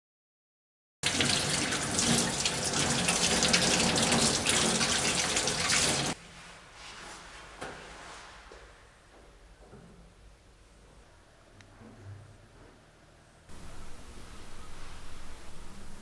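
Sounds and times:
tap water running into sink: 1.0 - 6.2.

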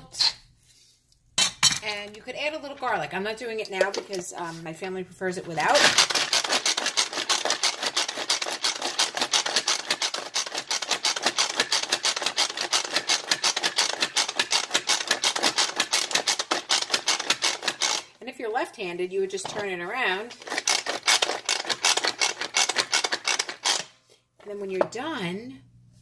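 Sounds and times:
pull-cord food processor whirring: 5.6 - 18.2, 19.6 - 23.9.

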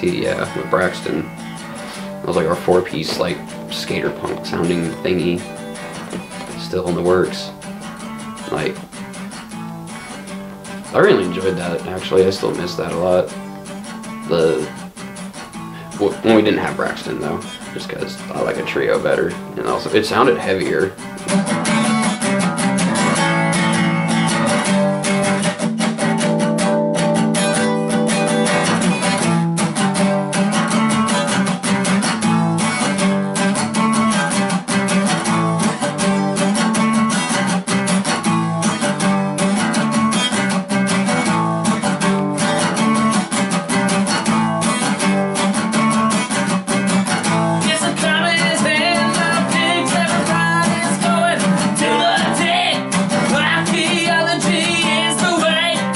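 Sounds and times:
acoustic guitar strummed: 0.0 - 55.9.

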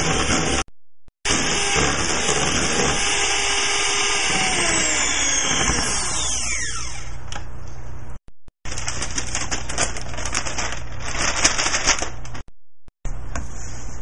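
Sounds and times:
small electric motor winding down: 4.0 - 7.2.

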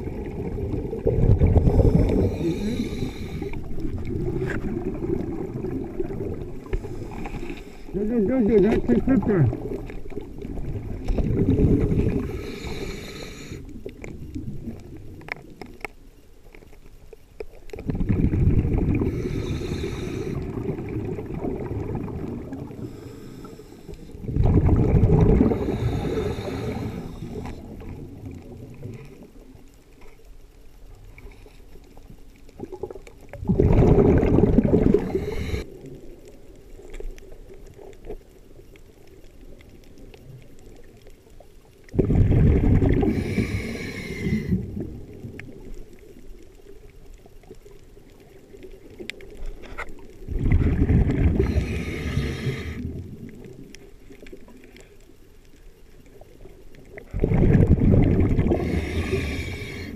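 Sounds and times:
diver's breath bubbling underwater: 0.0 - 7.8, 17.8 - 28.2, 32.6 - 35.7, 41.9 - 45.1, 50.3 - 53.5, 57.0 - 59.9
water noise: 0.0 - 59.9.

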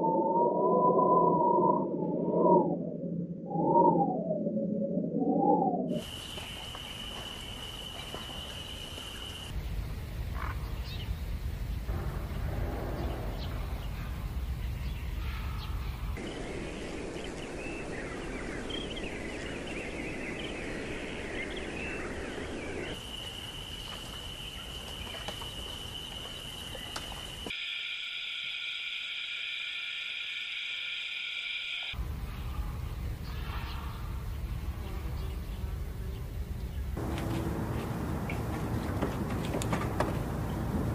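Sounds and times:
birds chirping: 6.0 - 27.5, 31.1 - 40.9
low rumble: 10.8 - 19.0, 37.0 - 40.9.

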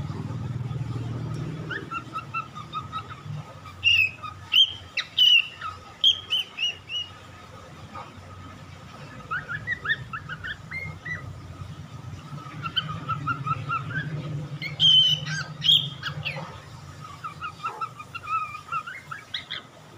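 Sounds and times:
cockatiel chirping and whistling: 1.7 - 7.1, 9.2 - 11.2, 12.4 - 19.6.

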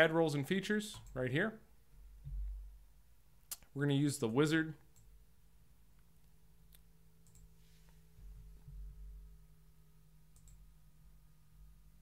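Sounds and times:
low steady hum: 0.0 - 12.0
computer mouse clicks: 6.7 - 7.5, 10.3 - 10.6.

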